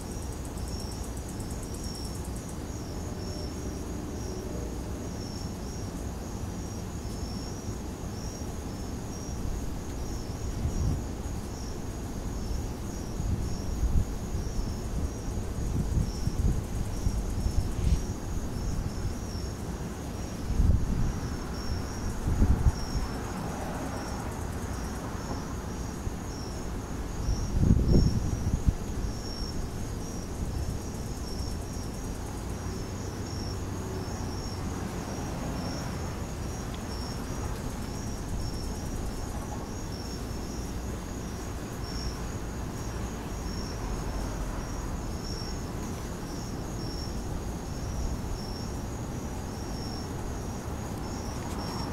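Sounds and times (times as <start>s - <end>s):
crickets chirping: 0.0s - 51.9s
wind buffeting microphone: 9.4s - 19.4s, 20.3s - 23.6s, 26.3s - 32.3s.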